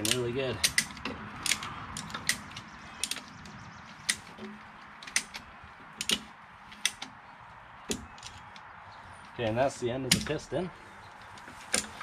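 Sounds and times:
ratchet strap pawl clicking: 0.0 - 7.2.

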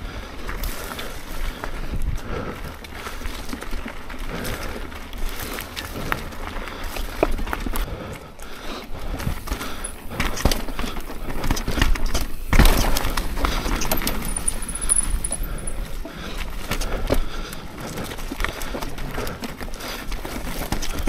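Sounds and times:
bike rattling: 0.0 - 21.0
tyres crunching over dirt and rocks: 9.1 - 21.0.

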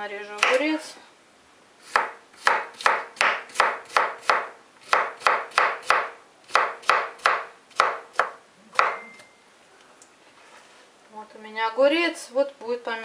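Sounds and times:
knife chopping cucumber on board: 1.9 - 9.0.

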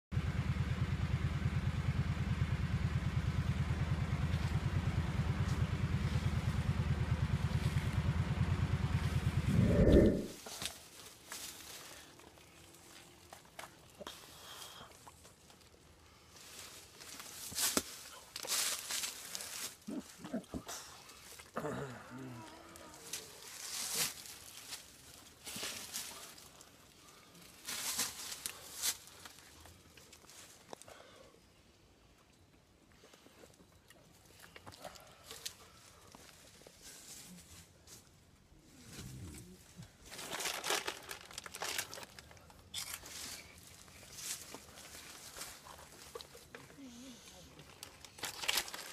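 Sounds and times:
atv engine idling: 0.1 - 10.2.

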